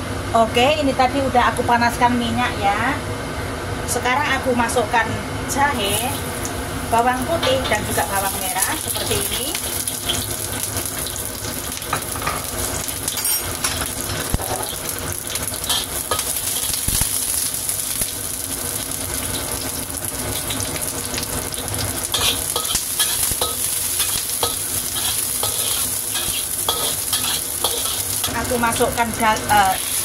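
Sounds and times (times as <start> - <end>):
aromatics sizzling in hot oil: 5.5 - 30.0
spatula scraping a wok: 15.6 - 16.9, 22.1 - 28.4.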